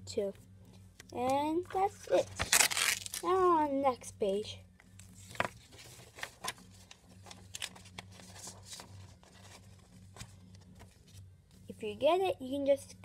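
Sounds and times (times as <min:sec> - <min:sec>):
low hum: 0:00.0 - 0:13.0
paper rustling: 0:02.0 - 0:03.3, 0:05.1 - 0:11.3.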